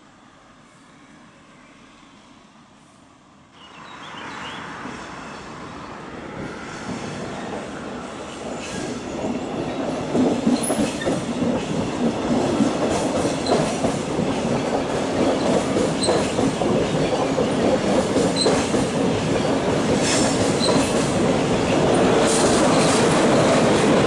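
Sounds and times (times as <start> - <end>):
train wheels rumbling on rail: 4.7 - 24.0
rail-joint clicks: 8.5 - 24.0.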